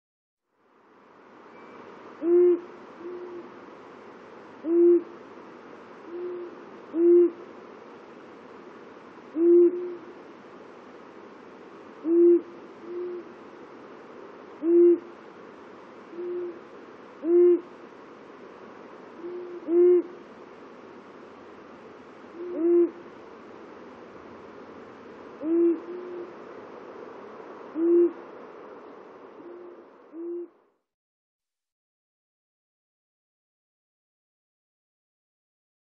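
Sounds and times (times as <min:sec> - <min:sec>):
owl hooting loudly: 0:02.2 - 0:03.5, 0:04.6 - 0:05.1, 0:06.1 - 0:07.4, 0:09.3 - 0:10.1, 0:12.0 - 0:13.3, 0:14.6 - 0:15.1, 0:16.1 - 0:16.6, 0:17.2 - 0:17.7, 0:19.2 - 0:20.1, 0:22.3 - 0:23.0, 0:25.4 - 0:26.3, 0:27.7 - 0:28.2, 0:29.4 - 0:30.6
faint answering owl hoots: 0:02.2 - 0:03.6, 0:04.6 - 0:05.2, 0:06.0 - 0:07.4, 0:09.3 - 0:10.2, 0:12.0 - 0:13.4, 0:14.6 - 0:15.2, 0:16.1 - 0:17.8, 0:19.1 - 0:20.2, 0:22.3 - 0:23.1, 0:25.4 - 0:26.4, 0:27.7 - 0:28.2, 0:29.4 - 0:30.7.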